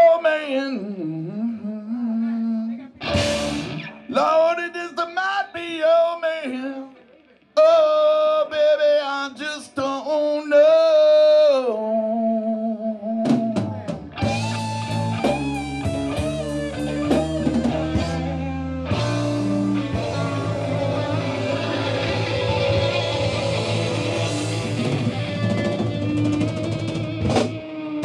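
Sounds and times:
electric guitar bent notes: 3.0 - 4.3, 13.2 - 28.0
blues-rock band playing: 3.0 - 4.4, 13.2 - 28.0.

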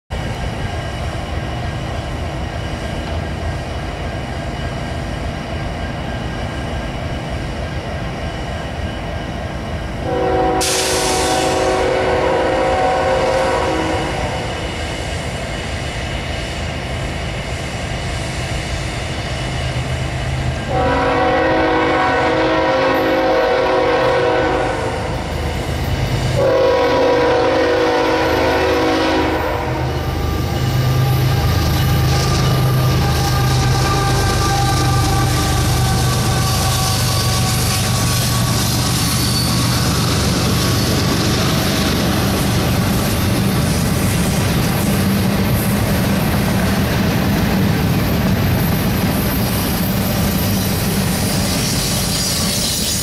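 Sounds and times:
diesel locomotive rumble: 0.1 - 53.0
diesel locomotive horn blasts: 10.0 - 14.7, 20.6 - 25.3, 26.3 - 39.8.

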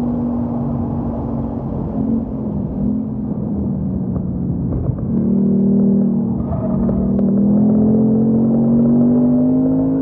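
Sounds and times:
car engine revving: 4.7 - 10.0.

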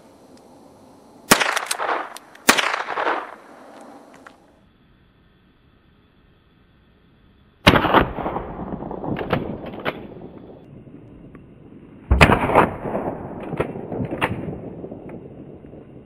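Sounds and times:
rifle shots with echo: 1.3 - 3.6, 12.1 - 14.8.

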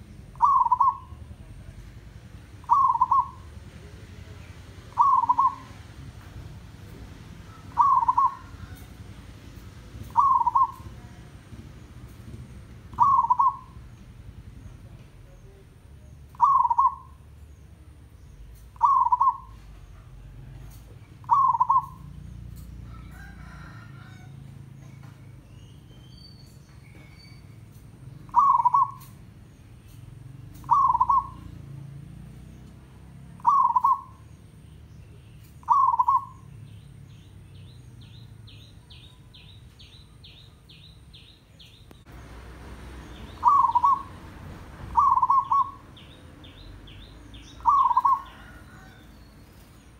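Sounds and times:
dove cooing: 0.0 - 1.5, 2.3 - 3.9, 4.8 - 11.6, 12.3 - 13.9, 16.3 - 17.2, 18.6 - 24.3, 28.2 - 29.2, 30.5 - 31.7, 33.3 - 34.3, 35.6 - 36.5, 43.0 - 46.2, 47.4 - 49.1.

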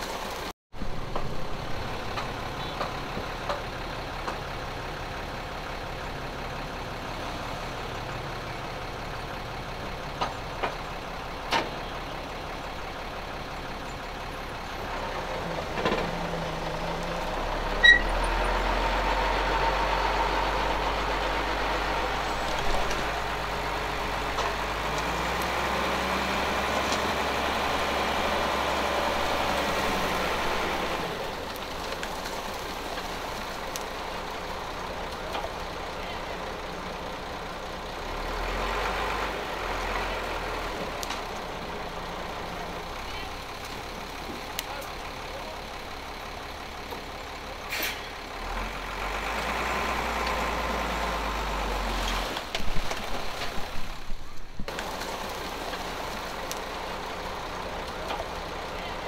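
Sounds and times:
heavy machinery diesel engines: 0.0 - 59.0
short sharp hiss: 47.7 - 48.0.

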